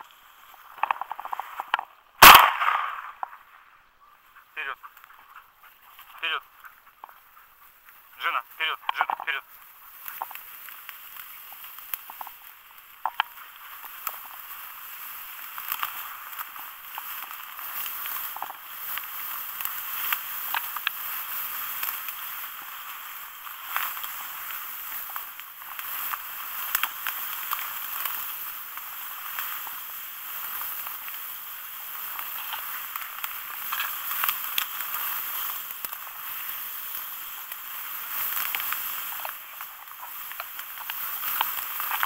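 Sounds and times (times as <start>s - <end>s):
dry reeds rustling and crackling: 0.0s - 42.0s
reed stems snapping: 8.6s - 42.0s.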